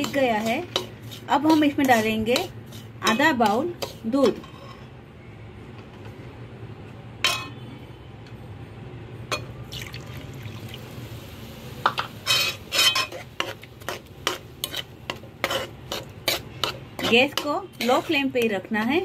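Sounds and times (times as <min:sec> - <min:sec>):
steel spoon scraping pan: 0:00.0 - 0:05.0, 0:12.1 - 0:18.6
milk pouring into pan: 0:09.7 - 0:11.0.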